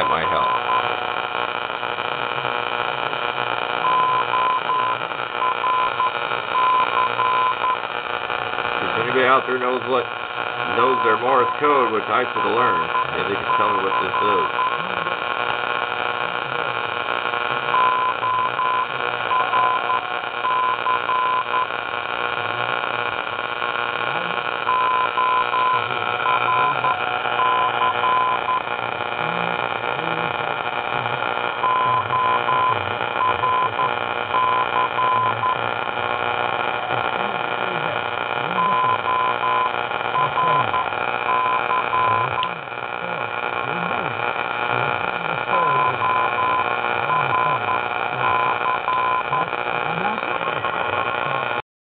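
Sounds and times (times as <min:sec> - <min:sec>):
morse code tone: 0:00.0 - 0:00.9, 0:03.8 - 0:07.8, 0:10.6 - 0:14.8, 0:17.7 - 0:21.7, 0:24.7 - 0:28.7, 0:31.6 - 0:35.6, 0:38.6 - 0:42.6, 0:45.5 - 0:49.5
radio static: 0:00.0 - 0:51.6.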